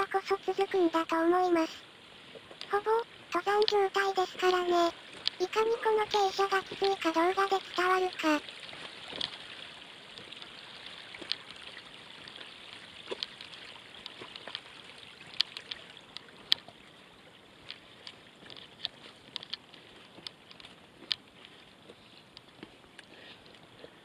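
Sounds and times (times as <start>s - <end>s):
water trickling over stones: 6.6s - 23.7s.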